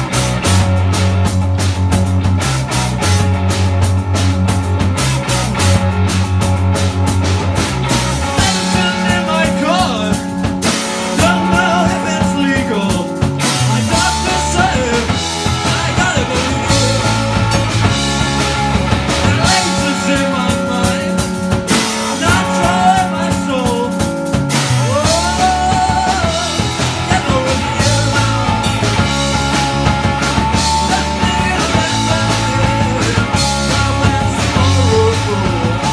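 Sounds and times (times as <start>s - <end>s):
distorted electric guitar: 0.0s - 35.9s
drum kit: 0.0s - 35.9s
electric bass: 0.0s - 35.9s
person singing lead vocal: 8.2s - 17.6s, 19.2s - 29.2s, 30.6s - 35.9s.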